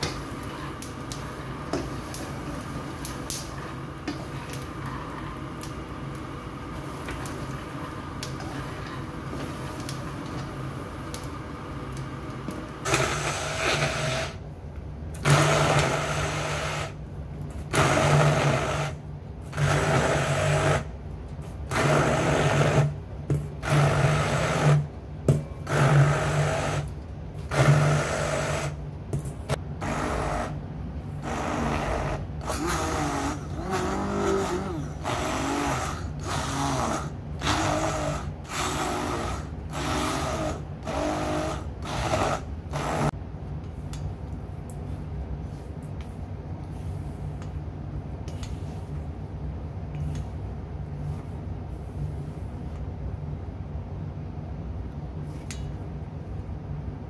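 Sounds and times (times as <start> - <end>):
stick blender chopping nuts: 12.8 - 14.4.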